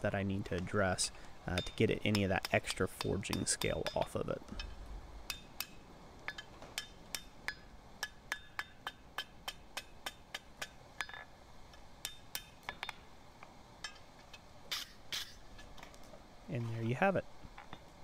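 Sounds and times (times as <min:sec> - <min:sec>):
hammer tapping steel on anvil: 0:01.5 - 0:11.3, 0:12.0 - 0:13.0.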